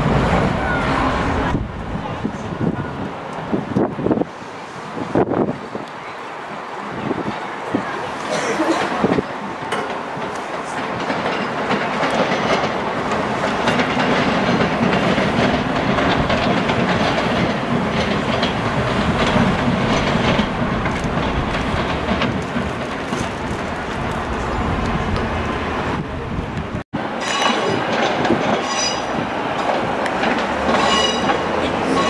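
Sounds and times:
train running on tracks: 0.0s - 32.0s
wheels clicking over rail joints: 7.2s - 32.0s.

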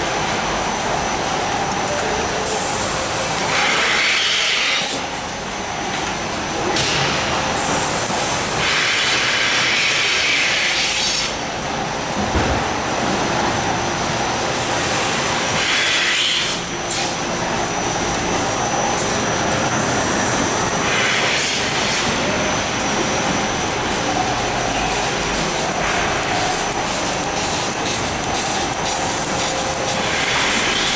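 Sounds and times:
milking machinery running: 0.0s - 30.9s.

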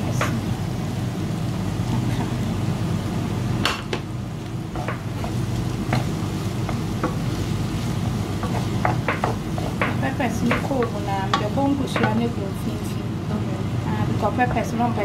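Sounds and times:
vegetables frying in a pan: 0.0s - 15.0s
spatula knocking and scraping pan: 4.7s - 12.3s.

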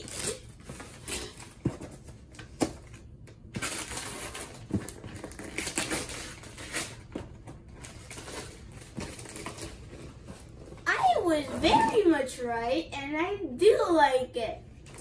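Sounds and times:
wrapping paper tearing and crumpling: 0.0s - 1.6s, 3.6s - 7.1s.

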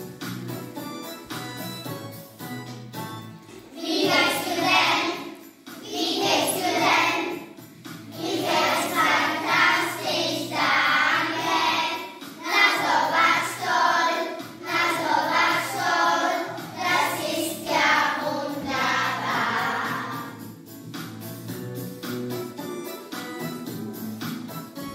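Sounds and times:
children singing together: 3.7s - 20.4s.

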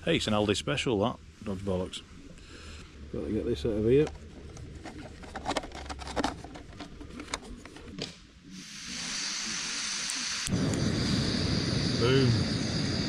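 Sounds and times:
camping gear clicking and rattling: 3.9s - 8.2s
gas hissing from stove burner: 8.4s - 13.0s.

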